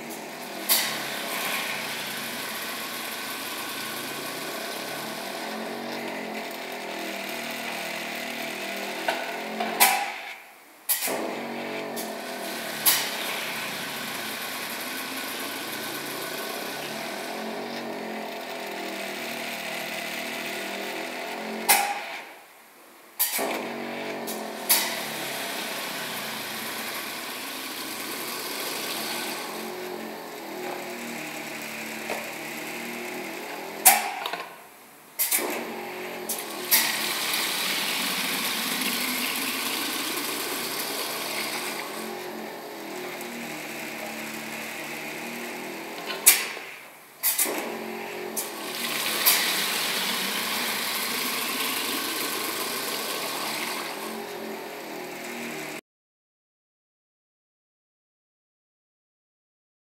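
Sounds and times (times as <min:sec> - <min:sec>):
pneumatic hisses: 0:12.8 - 0:13.2, 0:23.2 - 0:23.5, 0:35.2 - 0:35.6, 0:46.2 - 0:47.6
machine whirring: 0:35.2 - 0:55.8.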